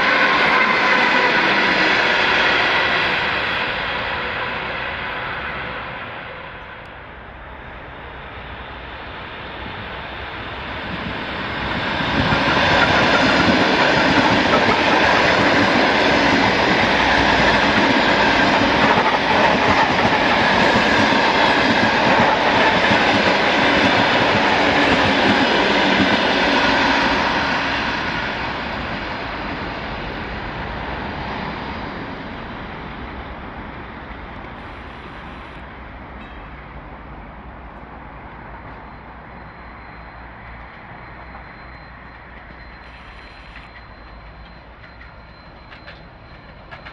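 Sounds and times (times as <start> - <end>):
electric train passing on tracks: 0.0 - 46.9.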